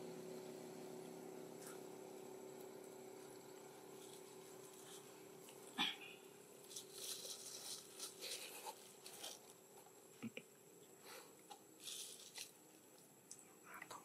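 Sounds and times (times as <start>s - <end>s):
faint steady hum: 0.0s - 14.0s
rustling and light crackles: 2.5s - 10.2s, 10.8s - 14.0s.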